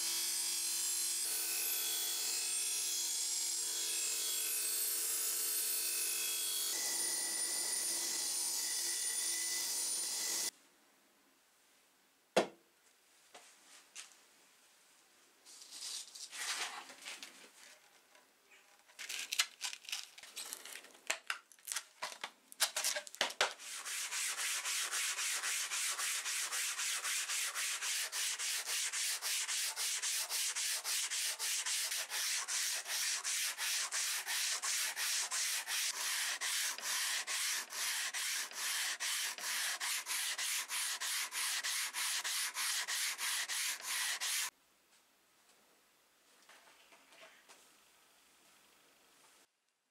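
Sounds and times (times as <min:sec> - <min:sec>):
sanding block rubbing steel blade: 0:23.6 - 0:44.5.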